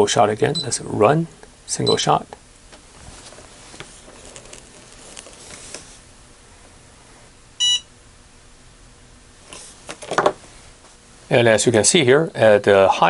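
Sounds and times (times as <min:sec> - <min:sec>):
spot welder beep: 0:01.8 - 0:02.0, 0:07.6 - 0:07.9
faint rustling: 0:02.7 - 0:07.4.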